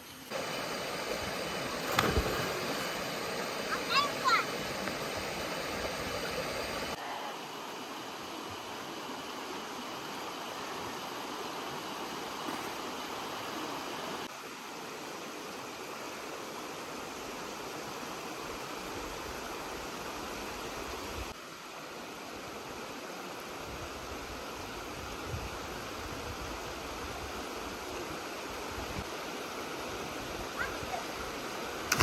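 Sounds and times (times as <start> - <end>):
water rushing over rocks: 0.2 - 14.4, 27.2 - 32.0.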